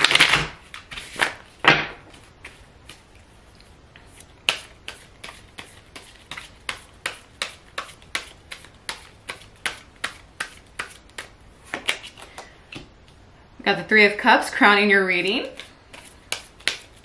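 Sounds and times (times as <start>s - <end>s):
cards being shuffled: 4.1s - 12.9s, 15.5s - 17.0s.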